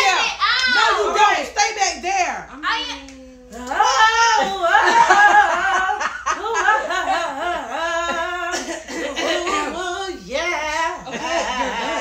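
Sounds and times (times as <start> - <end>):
people laughing: 4.1 - 12.0.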